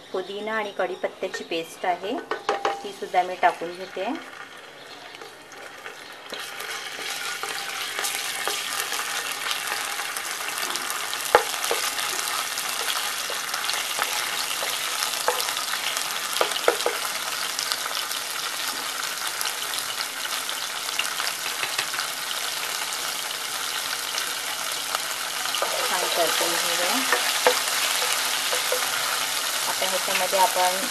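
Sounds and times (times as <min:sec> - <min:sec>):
paste sizzling in hot oil: 0:02.9 - 0:30.9
spatula knocking against pan: 0:11.3 - 0:12.1, 0:16.4 - 0:17.1.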